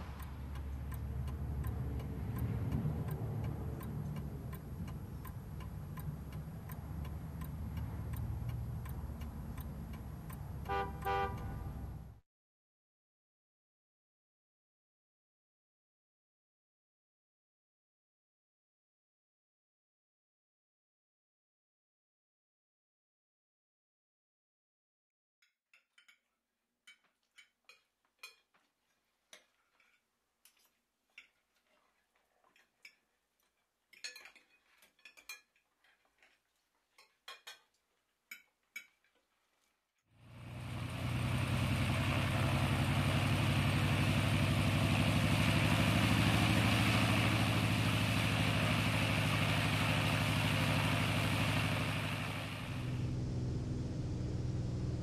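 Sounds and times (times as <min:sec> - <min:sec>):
engine drone: 0:00.0 - 0:12.2, 0:40.2 - 0:55.0
dishes and cutlery clinking: 0:25.8 - 0:39.3.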